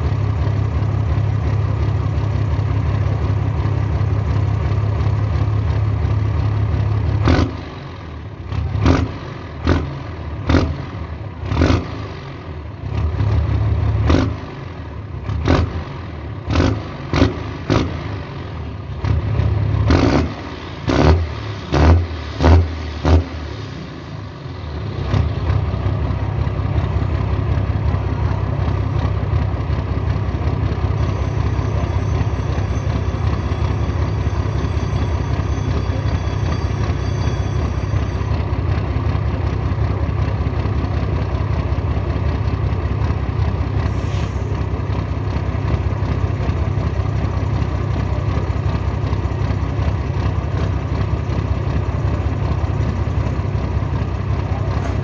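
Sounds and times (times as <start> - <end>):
diesel truck engine idling: 0.0 - 55.0
engine throttle blips: 19.1 - 43.4, 44.4 - 55.0.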